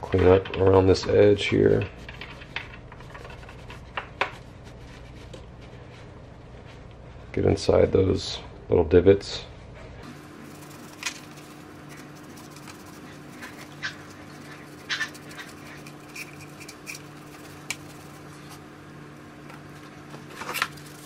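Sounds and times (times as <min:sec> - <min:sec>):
steady low hum: 0:00.0 - 0:21.0
paper towel rubbing on plastic: 0:01.6 - 0:06.8, 0:10.2 - 0:18.6.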